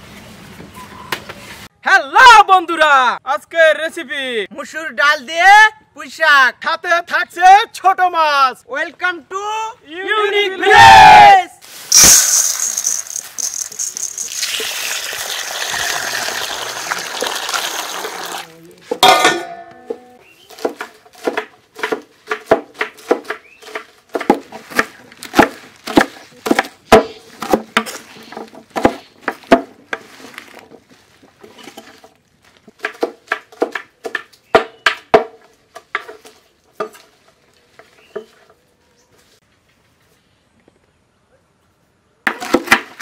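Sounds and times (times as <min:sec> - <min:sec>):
ringing metal clank: 0:19.0 - 0:20.2.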